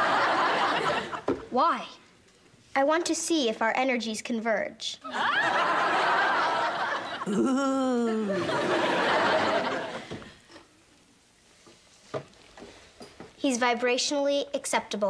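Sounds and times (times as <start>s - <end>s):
studio audience laughing: 0.0s - 1.3s, 5.1s - 7.5s, 8.1s - 10.4s
voice gliding down in pitch: 7.2s - 8.4s.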